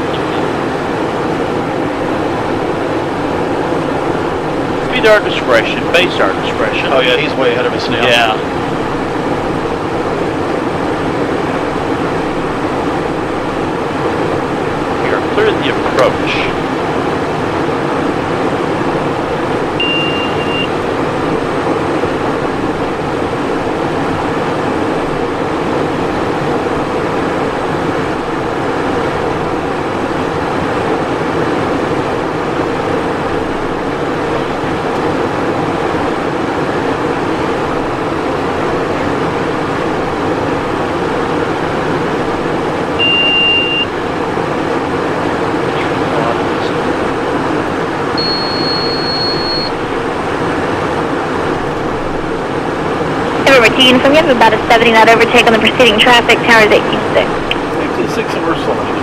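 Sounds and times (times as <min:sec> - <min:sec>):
jet cockpit airflow and engine drone: 0:00.0 - 0:59.0
short high beep: 0:19.8 - 0:20.7, 0:43.0 - 0:43.9, 0:48.2 - 0:49.8.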